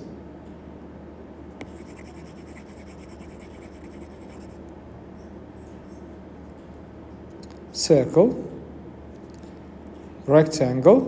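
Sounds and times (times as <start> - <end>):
low steady hum: 0.0 - 11.0
stylus scratching on screen: 1.6 - 4.6.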